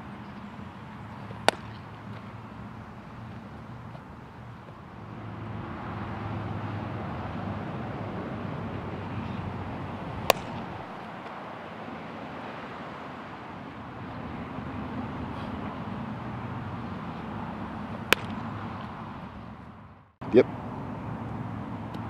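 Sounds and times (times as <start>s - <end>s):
low outdoor rumble: 0.0s - 22.0s
baseball smacking into glove: 1.4s - 2.3s, 10.2s - 11.4s, 18.1s - 18.9s.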